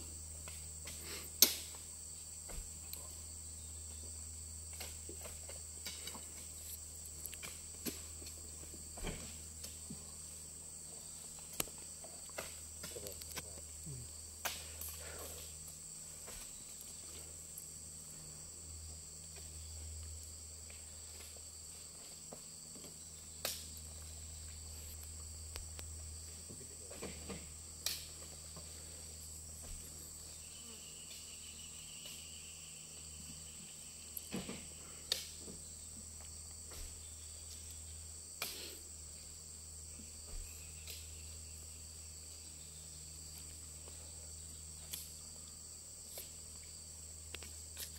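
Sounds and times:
insect chorus: 0.0 - 47.9.

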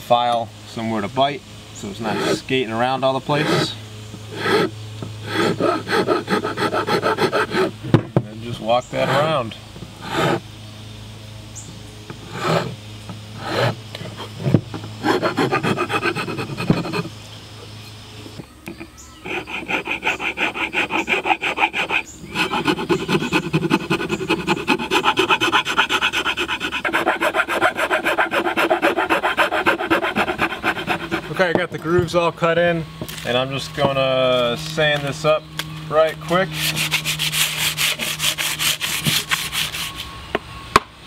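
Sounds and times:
file rasping across wood: 1.9 - 2.5, 3.3 - 7.8, 8.9 - 10.4, 12.1 - 12.8, 13.4 - 17.1, 19.2 - 31.4, 36.5 - 40.0.

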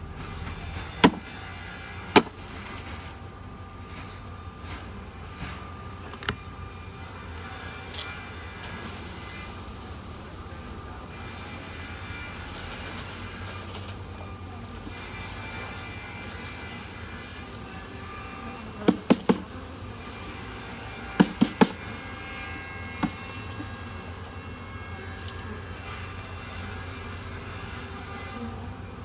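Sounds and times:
bees humming: 0.0 - 29.0
knocks on wooden package: 1.0 - 1.2, 18.8 - 19.5, 21.2 - 21.8.

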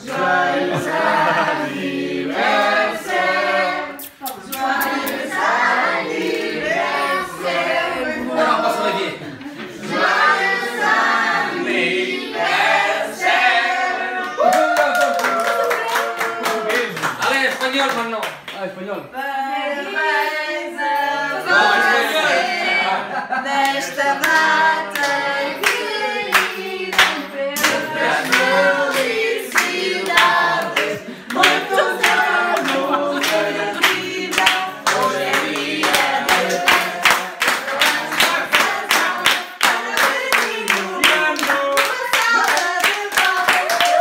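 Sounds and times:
group singing a birthday song: 0.0 - 14.6, 19.1 - 44.0
people clapping in a steady beat: 1.8 - 6.4, 14.1 - 19.0, 23.6 - 44.0.

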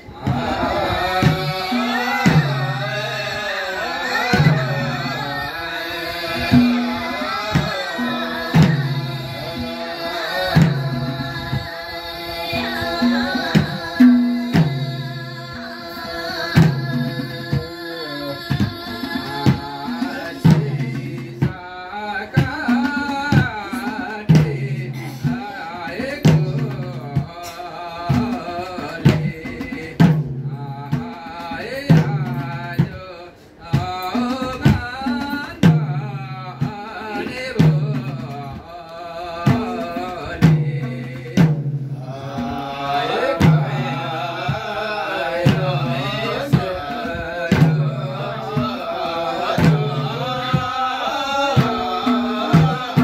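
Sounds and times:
hand drums beating: 0.0 - 53.0
men singing: 0.0 - 53.0.

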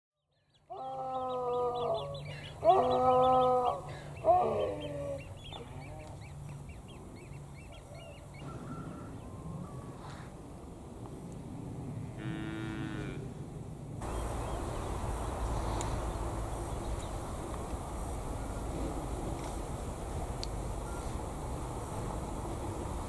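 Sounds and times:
small birds chirping: 0.2 - 9.3, 14.0 - 18.7
large animal calling: 0.7 - 6.1.

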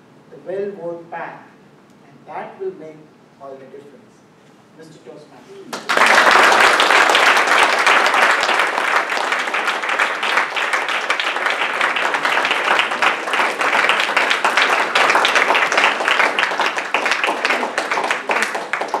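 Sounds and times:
audience applauding: 5.7 - 19.0.

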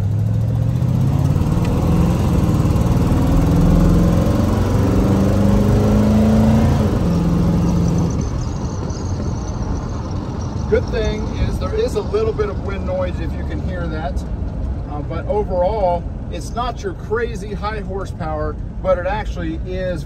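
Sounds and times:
car engine accelerating: 0.0 - 15.1.

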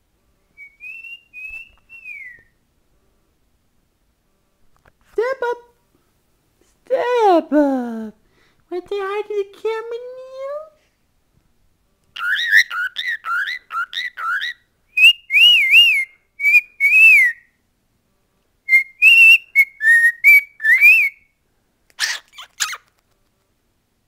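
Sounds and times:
cockatiel whistling: 0.6 - 2.5, 12.2 - 17.5, 18.7 - 21.3
cockatiel harsh chirps: 12.2 - 14.6, 21.9 - 22.9.

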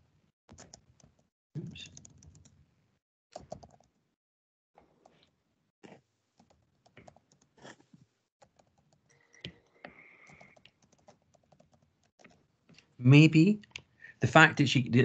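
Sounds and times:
faint keyboard typing: 0.5 - 2.6, 3.4 - 4.0, 4.8 - 12.9.

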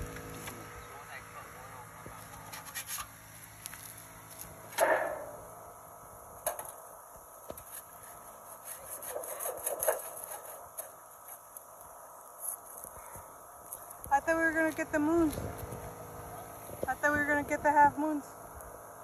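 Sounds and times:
scraping on wood: 2.3 - 3.2, 7.5 - 11.4
loud sharp bang: 4.7 - 5.5.

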